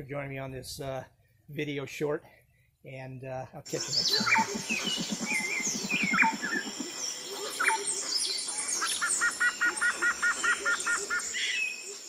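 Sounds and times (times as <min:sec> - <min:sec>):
bird repeating double notes: 0:03.7 - 0:06.9
birds singing and chirping: 0:03.7 - 0:12.0.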